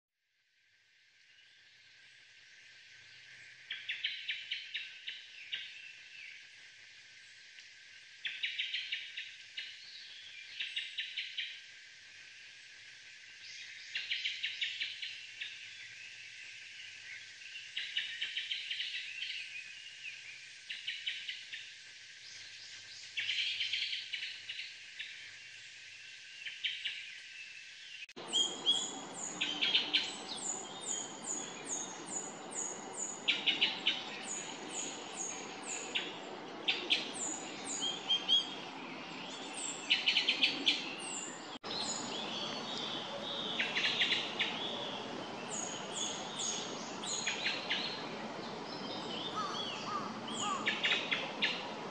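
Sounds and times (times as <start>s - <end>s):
background hiss: 0.6s - 51.9s
thrush calls: 43.0s - 51.9s.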